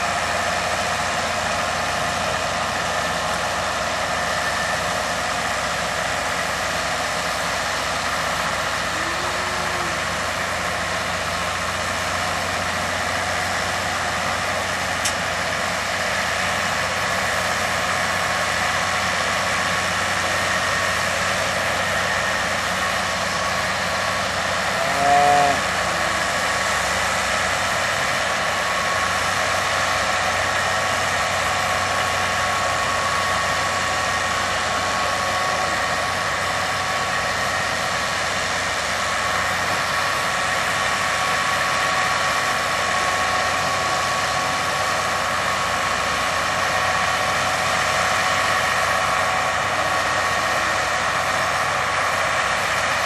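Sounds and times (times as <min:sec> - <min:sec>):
tractor engine running: 0:00.0 - 0:53.0
rising-and-falling call: 0:08.8 - 0:10.4, 0:24.6 - 0:26.8
straw blowing rush: 0:23.4 - 0:29.1.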